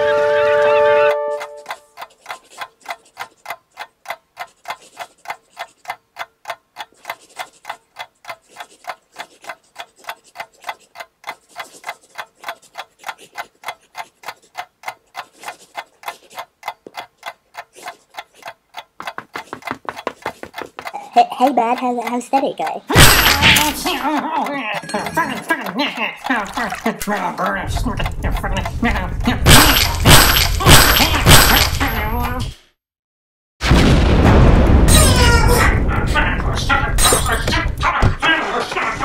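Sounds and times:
clock ticking: 0.7 - 32.4
pencil scribbling: 1.7 - 3.5, 4.4 - 6.0, 6.9 - 14.6, 15.2 - 16.5, 17.6 - 18.6, 19.3 - 20.9.

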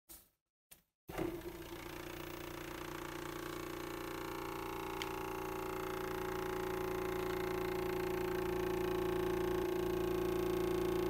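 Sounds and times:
thermoacoustic engine humming: 2.4 - 11.0.

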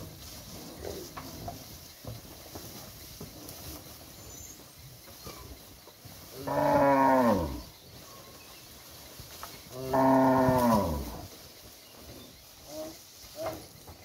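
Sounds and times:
cattle mooing: 6.4 - 7.7, 9.8 - 11.2.

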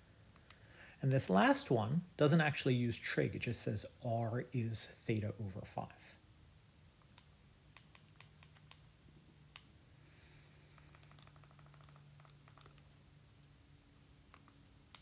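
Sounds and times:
low steady hum: 0.0 - 15.0
soft clicks: 6.4 - 8.9, 9.5 - 9.8, 14.3 - 15.0
rapid buzzing rattle: 10.6 - 12.9.

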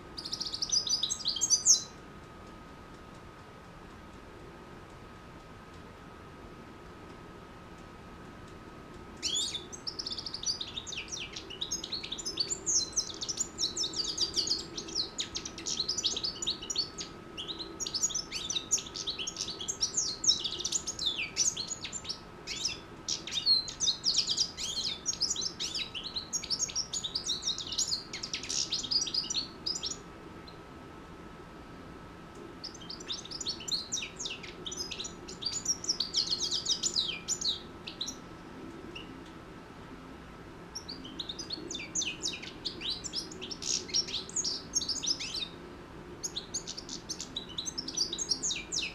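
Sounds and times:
finch twittering song: 0.0 - 2.0, 9.2 - 30.6, 32.6 - 38.3, 40.8 - 45.6, 46.2 - 48.9.

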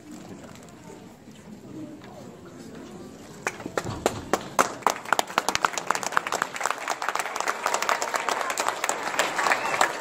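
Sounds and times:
group clapping hands: 3.4 - 10.0.

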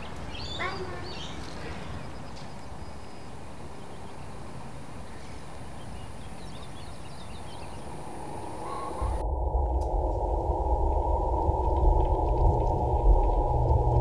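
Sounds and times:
faint bird chirps: 0.0 - 4.3, 5.1 - 9.2
faint high whine: 7.3 - 14.0.

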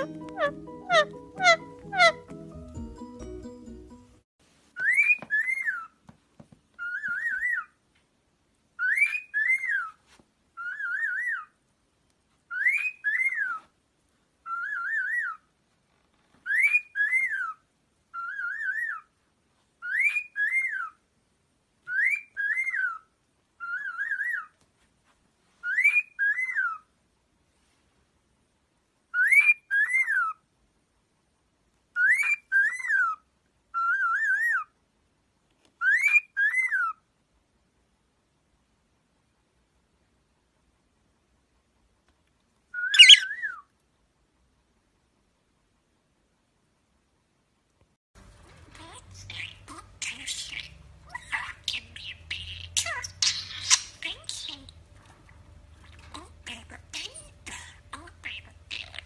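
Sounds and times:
cockatiel whistling a tune: 4.8 - 5.9, 6.8 - 7.7, 14.5 - 15.4, 18.2 - 19.0, 19.8 - 20.9, 21.9 - 23.0, 23.6 - 24.5, 25.6 - 26.8, 29.2 - 30.4, 32.0 - 33.2, 35.8 - 37.0, 42.7 - 43.6.

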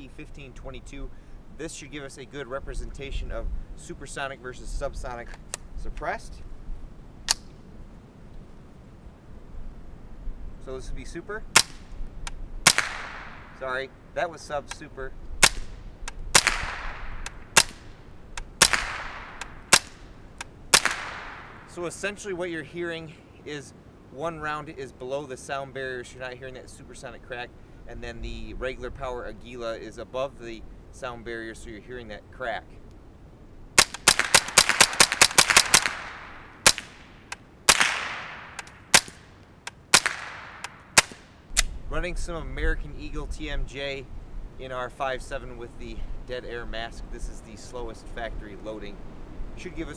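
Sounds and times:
suppressed rifle shots: 11.5 - 13.6, 15.4 - 21.8, 33.8 - 41.8.

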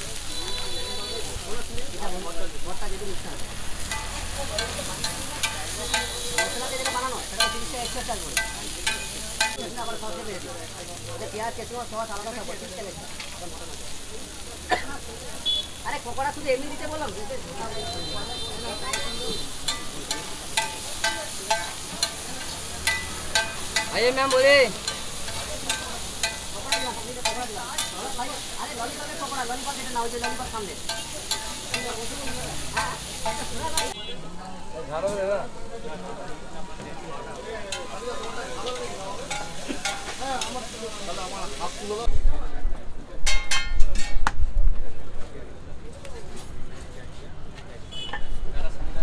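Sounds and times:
chicken and onions sizzling: 0.0 - 42.5
spatula scraping on griddle: 3.4 - 10.0, 18.7 - 34.0.

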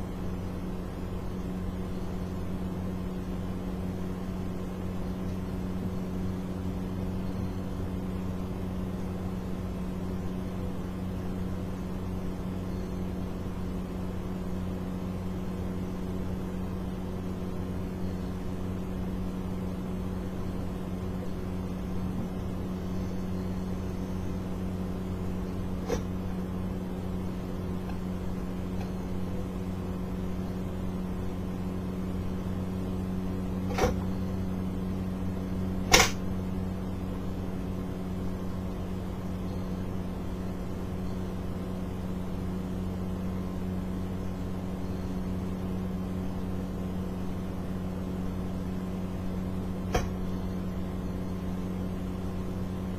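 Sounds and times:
low electrical hum: 0.0 - 52.9
short click: 35.9 - 36.2, 49.9 - 50.2.

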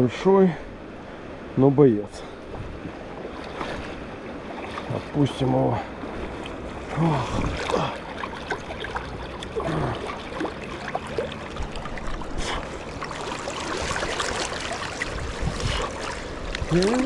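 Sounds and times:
river water flowing and trickling: 0.0 - 17.0
short low grunt: 9.6 - 10.1.

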